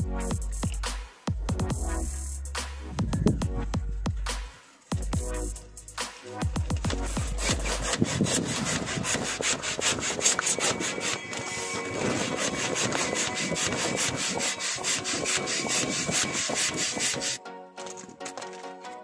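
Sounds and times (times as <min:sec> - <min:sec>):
balloon pump whooshing: 0:04.9 - 0:18.5.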